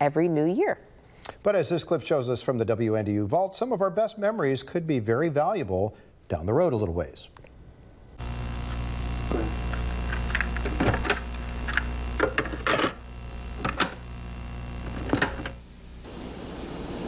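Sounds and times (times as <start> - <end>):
steady electrical hum: 3.1 - 17.0
tape deck mechanical clicks: 9.6 - 15.6.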